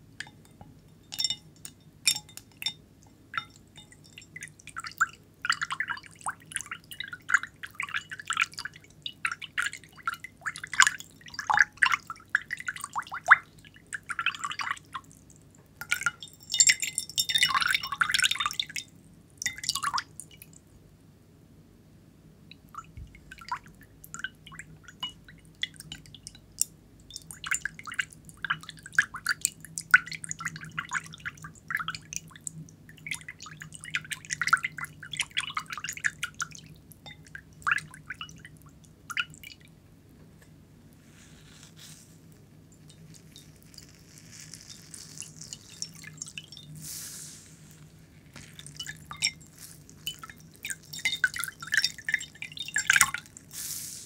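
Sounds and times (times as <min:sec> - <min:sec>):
water dripping into ceramic bowl: 0:00.1 - 0:20.6, 0:22.5 - 0:39.8, 0:42.7 - 0:46.8, 0:48.4 - 0:53.5
soft hissing water wash: 0:30.2 - 0:54.0.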